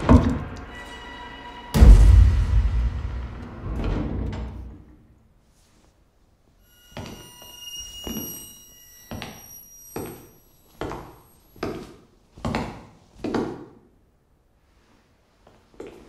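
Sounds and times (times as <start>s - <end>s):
high metallic ringing: 0.0s - 3.6s, 6.6s - 11.6s
deep boom: 1.7s - 5.1s
heavy thuds: 1.8s - 5.0s.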